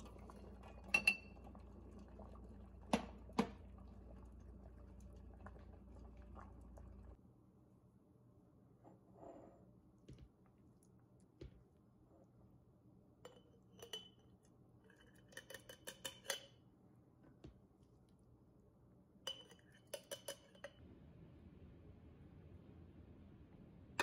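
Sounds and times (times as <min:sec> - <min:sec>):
spoon clinking on glass jars: 0:13.2 - 0:14.3, 0:14.9 - 0:16.6, 0:19.3 - 0:20.8.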